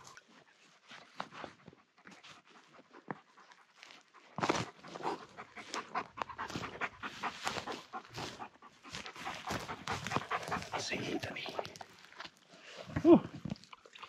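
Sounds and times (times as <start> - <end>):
dog panting rapidly: 1.3 - 12.0.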